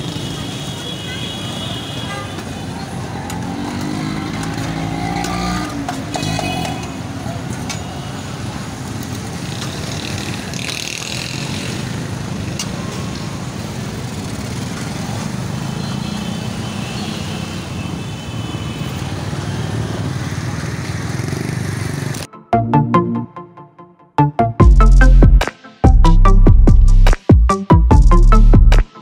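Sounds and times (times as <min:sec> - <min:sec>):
motorcycle and car engines passing: 0:02.4 - 0:17.8, 0:18.9 - 0:22.3.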